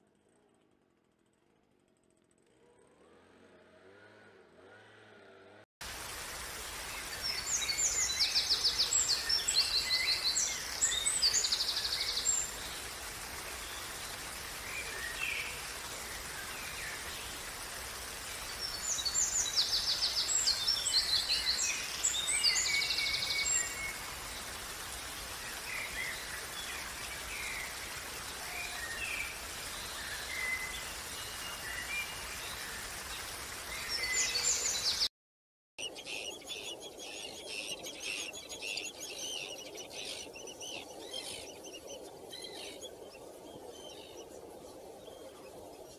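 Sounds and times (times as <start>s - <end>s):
waterfall splashing over rocks: 5.8s - 35.1s.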